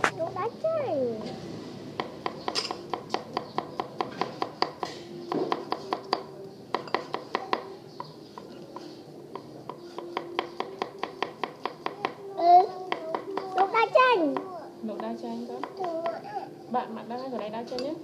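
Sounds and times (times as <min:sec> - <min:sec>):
knives chopping on wooden boards: 0:02.0 - 0:12.2.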